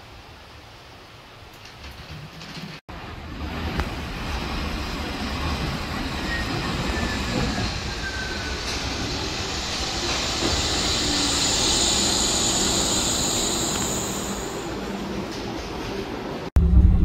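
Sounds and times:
monorail car rolling rumble: 1.2 - 17.0
high hiss: 7.2 - 15.0.

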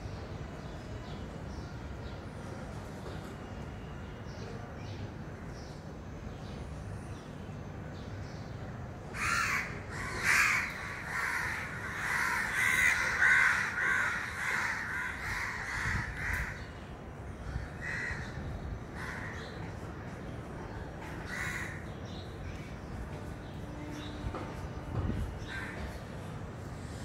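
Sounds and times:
crow cawing: 9.1 - 16.7, 17.6 - 19.4, 21.2 - 21.8.

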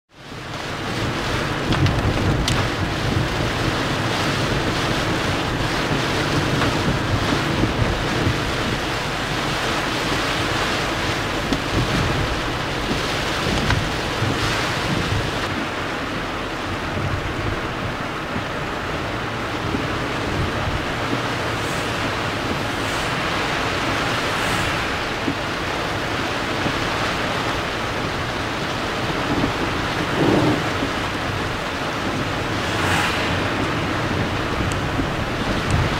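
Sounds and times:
heavy rain on a car: 0.1 - 35.9
wet-road tyre noise: 0.1 - 35.9
low rumble: 19.5 - 35.9.

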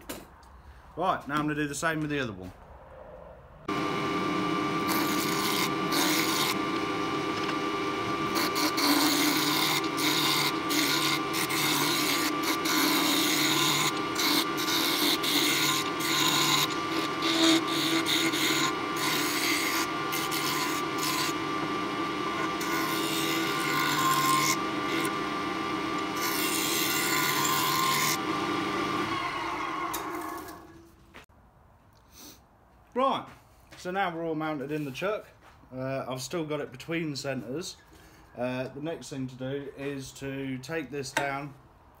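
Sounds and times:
turning tool scraping wood: 3.7 - 29.2
lathe motor hum: 3.7 - 30.8.

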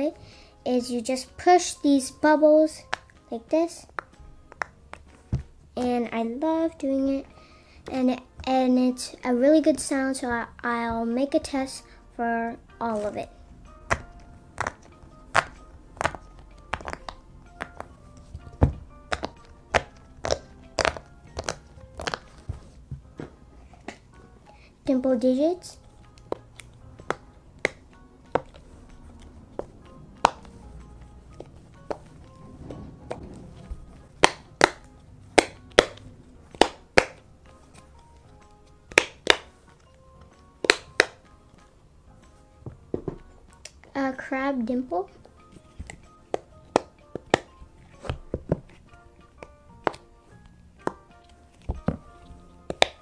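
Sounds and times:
silicone fidget toy popping: 34.2 - 37.3, 40.6 - 41.3.

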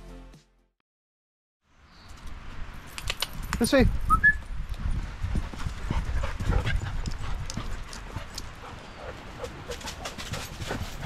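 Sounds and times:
dogs' paws running: 4.6 - 11.0.

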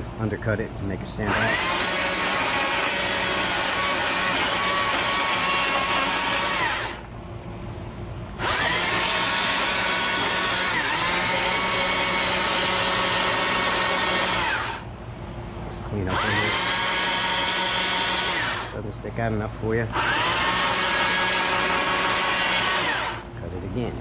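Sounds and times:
chainsaw cutting wood: 1.2 - 7.1, 8.4 - 14.9, 16.1 - 18.8, 19.9 - 23.3.

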